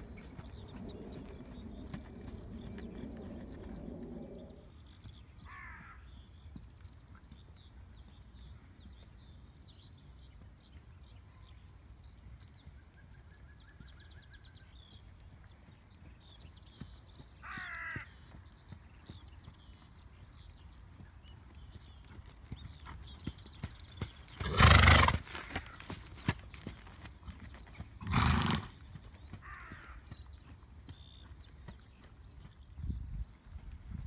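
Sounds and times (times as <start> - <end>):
low hum: 0.0 - 5.0
small birds chirping: 0.0 - 34.0.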